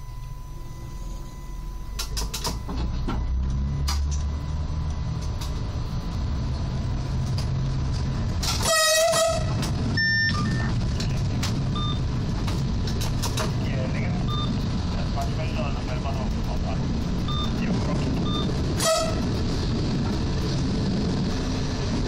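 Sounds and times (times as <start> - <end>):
high beeps in the cab: 0.0 - 5.2, 10.0 - 10.8, 11.8 - 12.1, 14.2 - 14.6, 17.3 - 18.6
diesel railcar engine rumble: 0.0 - 22.0
train horn toot: 8.6 - 9.7, 18.8 - 19.3.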